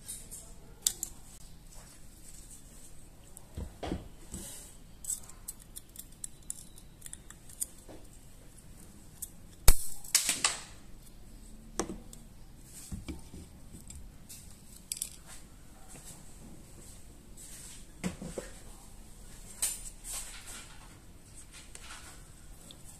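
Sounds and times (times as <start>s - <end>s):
tool clicking and scraping metal parts: 5.0s - 7.9s.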